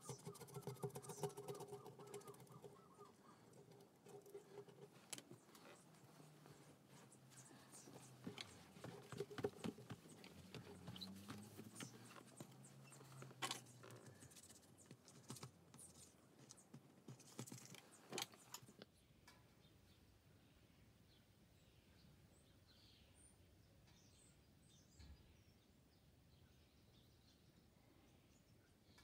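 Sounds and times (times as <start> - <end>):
faint clicks and taps: 0.1 - 19.4.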